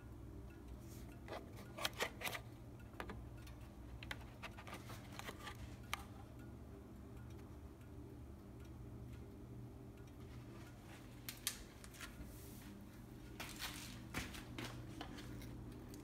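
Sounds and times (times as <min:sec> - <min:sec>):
steady low hum: 0:00.0 - 0:16.0
clicks and taps of handling: 0:01.2 - 0:06.1.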